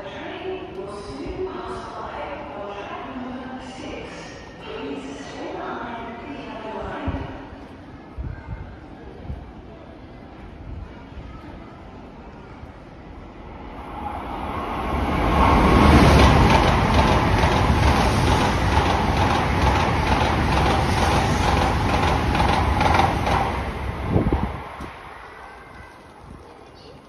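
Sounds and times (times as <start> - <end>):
train passing at speed: 0.0 - 27.0.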